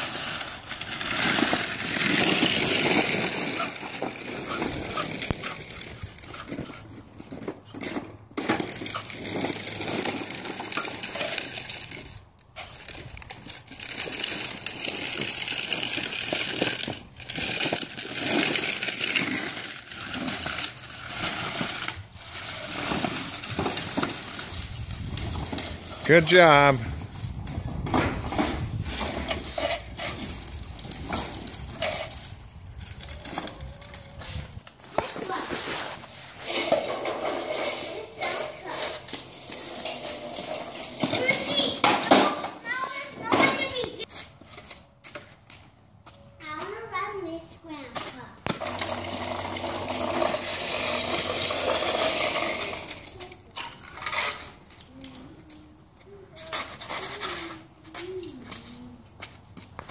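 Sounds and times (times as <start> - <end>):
snow shovel scraping: 0.0 - 12.0, 34.8 - 40.4
toy truck wheels scraping: 0.0 - 45.4, 48.0 - 59.9
scoop scraping snow: 35.0 - 36.6.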